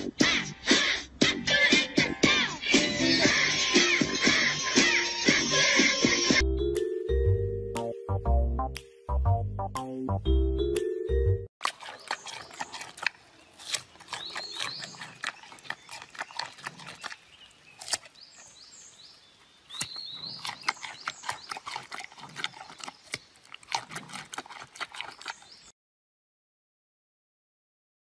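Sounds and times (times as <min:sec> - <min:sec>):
panda chewing carrot crunches: 0:11.6 - 0:18.6, 0:19.7 - 0:25.6.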